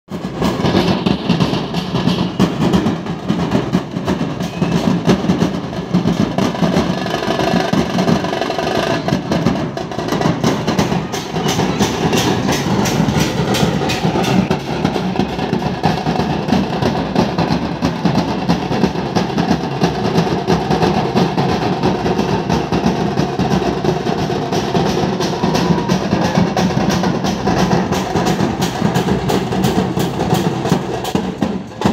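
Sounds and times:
barrel drums beaten with sticks: 0.1 - 31.9.

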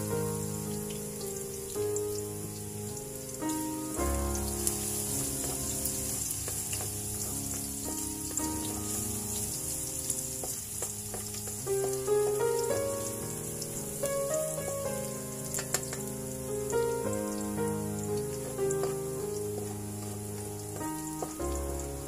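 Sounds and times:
background music: 0.0 - 22.0
garlic sizzling in oil: 0.0 - 22.0
spatula stirring in wok: 4.3 - 13.2, 18.4 - 21.7.

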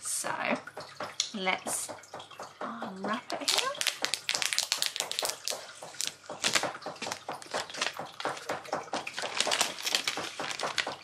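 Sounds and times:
plastic wrap crackling and rustling: 3.3 - 11.0.

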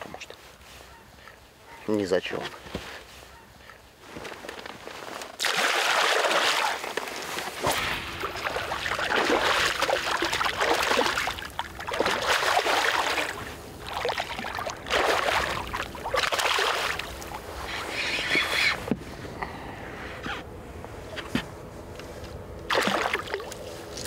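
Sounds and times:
fish splashing in water: 5.4 - 17.5, 22.7 - 24.0.

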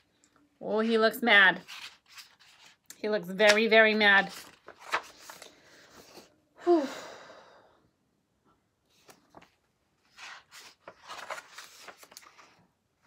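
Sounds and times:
paper pages rustling: 1.6 - 6.3, 8.9 - 12.7.

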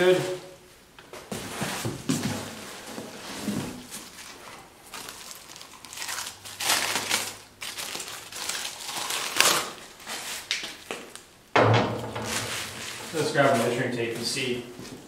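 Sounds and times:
plastic wrapping crinkling: 3.8 - 11.3.

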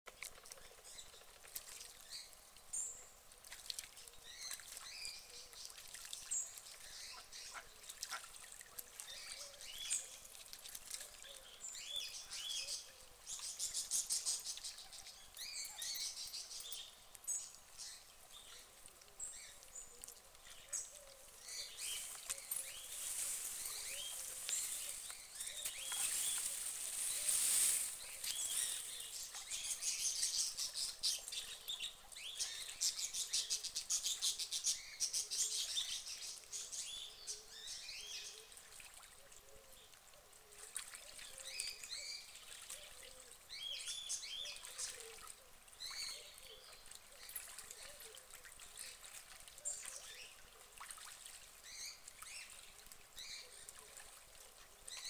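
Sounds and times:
small birds chirping: 0.1 - 38.6.

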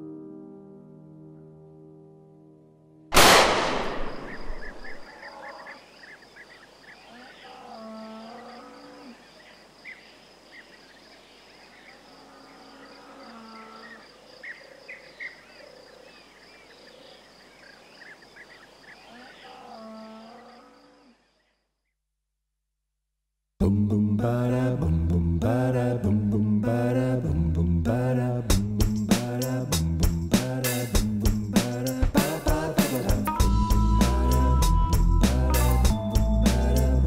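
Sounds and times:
pistol gunshot: 3.1 - 5.1
faint chirping: 4.0 - 21.8.

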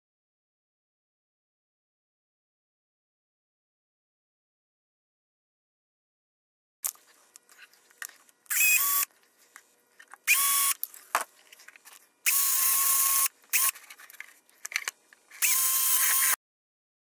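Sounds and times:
power drill whining: 8.5 - 9.1, 10.2 - 10.8, 12.3 - 13.8, 15.4 - 16.4
plastic parts clicking: 13.5 - 16.3.

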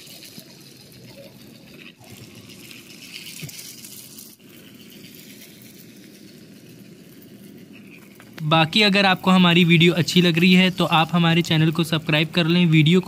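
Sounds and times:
toy train motor whirring: 2.2 - 8.4.

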